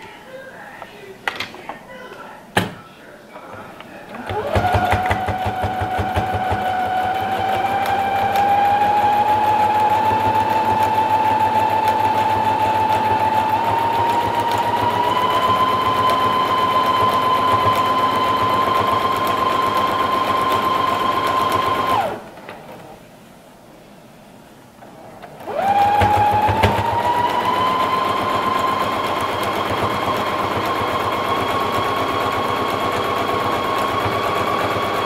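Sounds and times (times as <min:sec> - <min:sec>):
sewing machine stitching: 0:04.2 - 0:22.3, 0:25.3 - 0:35.0.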